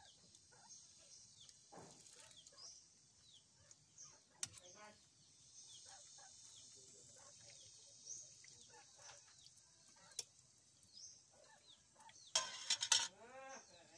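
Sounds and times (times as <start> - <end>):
steady high hiss: 0.0 - 12.8
faint birds chirping: 0.0 - 13.9
metal ladle clinking on pan: 12.3 - 13.1.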